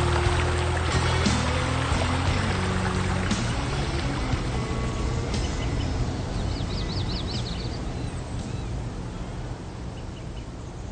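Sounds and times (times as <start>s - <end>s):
splashing water hiss: 0.0s - 5.4s
birds chirping: 0.0s - 10.9s.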